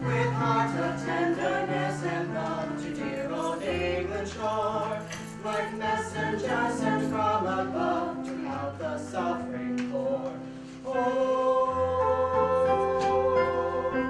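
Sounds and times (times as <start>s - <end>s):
vocal ensemble singing slowly: 0.0s - 14.0s.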